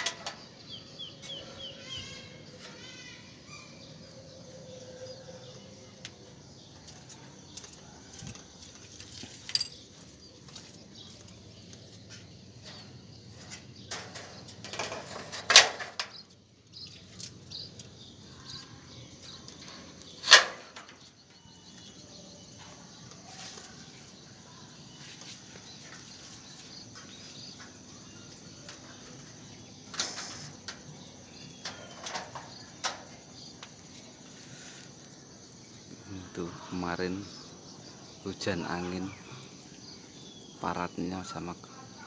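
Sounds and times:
insect chirring: 0.0s - 42.0s
sharp knocks and rustles: 6.8s - 18.0s, 19.2s - 21.9s, 25.0s - 34.4s.

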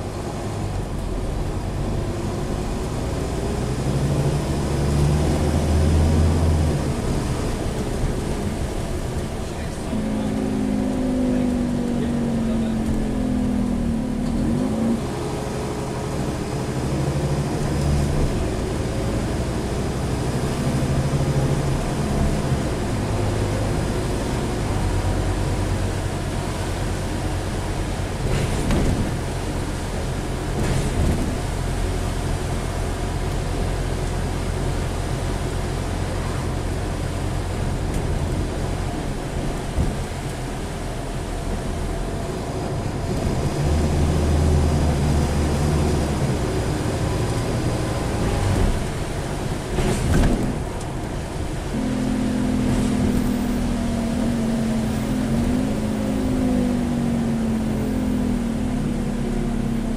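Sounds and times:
bus diesel engine: 0.0s - 59.9s
steady hum: 51.1s - 57.6s
faint falling whine: 51.7s - 59.9s.

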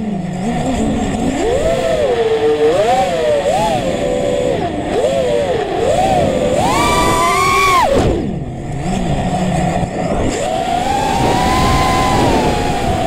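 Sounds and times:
drone motors whining: 0.0s - 13.0s
rushing air: 6.6s - 13.0s.

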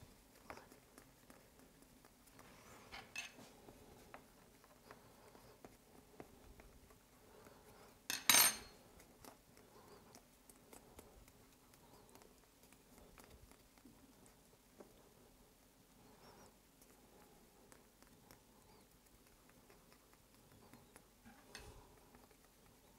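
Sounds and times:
hard object clattering: 8.1s - 8.7s.

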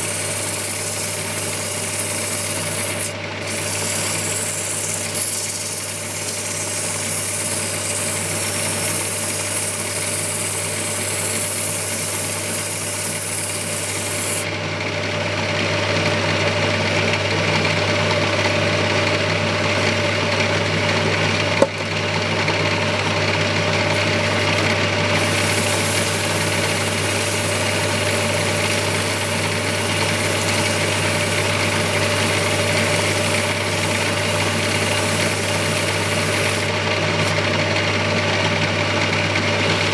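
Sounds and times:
sandpaper rubbing on turning wood: 0.0s - 14.4s, 23.8s - 37.4s
lathe motor humming: 0.0s - 39.9s.

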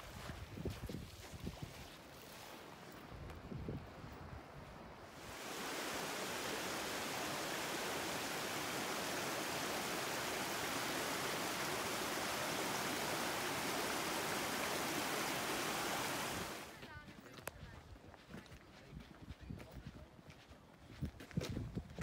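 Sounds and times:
stream rushing over rocks: 5.1s - 16.7s.

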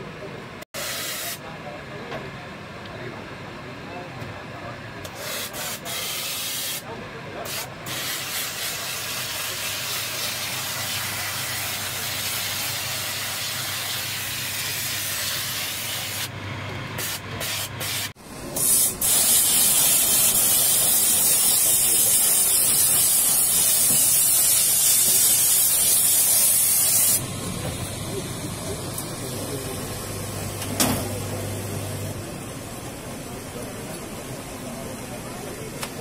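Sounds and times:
steam nozzle hissing: 0.8s - 1.4s, 5.2s - 6.8s, 7.5s - 16.3s, 17.0s - 27.3s.

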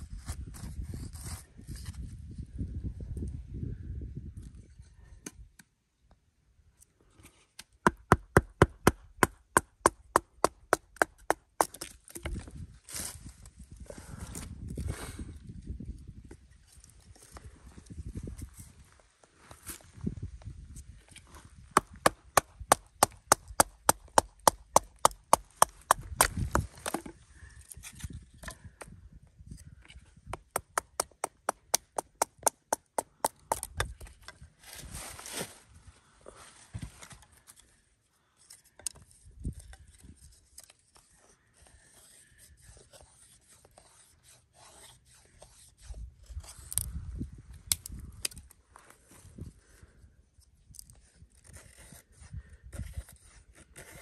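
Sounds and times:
blade scraping wood: 39.7s - 46.9s, 52.8s - 54.0s.

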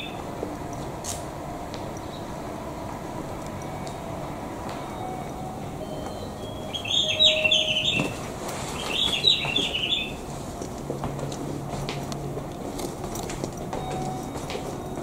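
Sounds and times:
low background hum: 0.0s - 15.0s
quick high chirps: 5.8s - 8.2s.

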